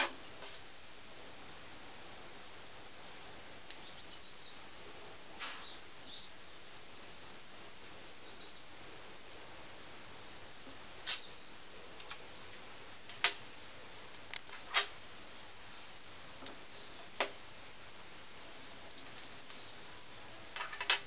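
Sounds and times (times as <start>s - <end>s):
faint steady hiss: 0.0s - 21.0s
small parts clicking and tapping: 20.5s - 21.0s.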